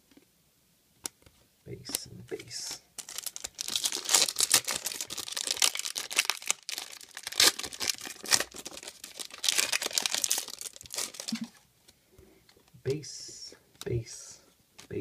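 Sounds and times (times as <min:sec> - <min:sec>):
foil wrapper crinkling and tearing: 0:03.0 - 0:11.6.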